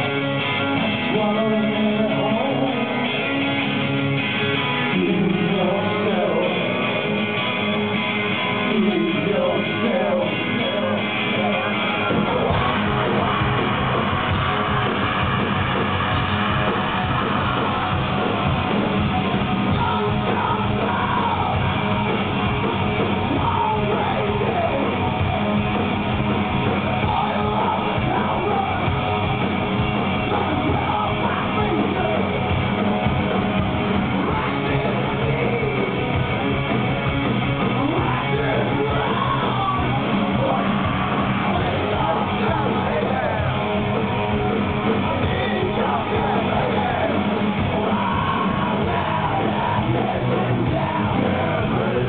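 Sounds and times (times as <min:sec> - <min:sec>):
rock band playing loud: 0:00.0 - 0:52.0
man shouting and singing: 0:08.6 - 0:13.3, 0:19.6 - 0:22.2, 0:23.2 - 0:25.3, 0:26.9 - 0:29.2, 0:30.2 - 0:32.4, 0:37.8 - 0:43.7, 0:45.1 - 0:52.0.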